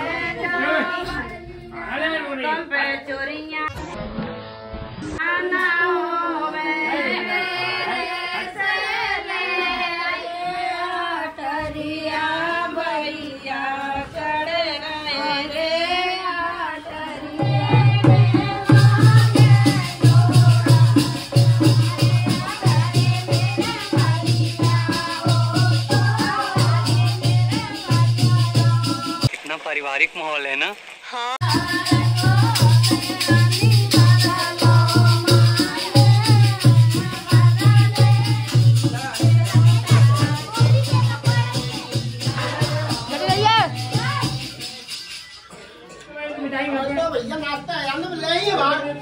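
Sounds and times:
fast rattling shaker: 18.5 - 29.4, 31.4 - 45.5.

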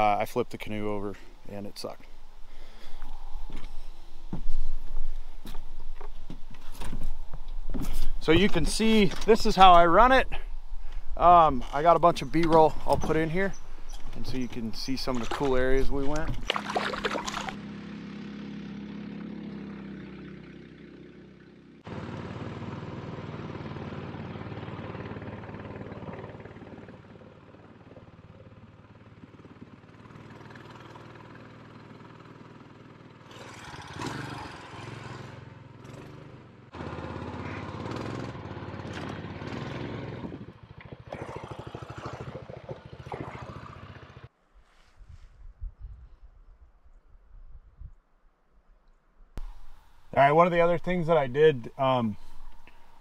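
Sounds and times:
water rushing along hull: 14.9 - 17.6
small gas engine running: 16.4 - 44.3.

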